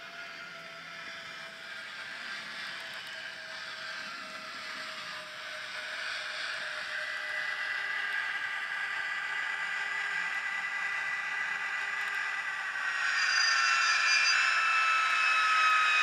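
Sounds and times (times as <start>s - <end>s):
high whistling whine: 0.0s - 16.0s
model train diesel engine sound: 9.4s - 14.4s.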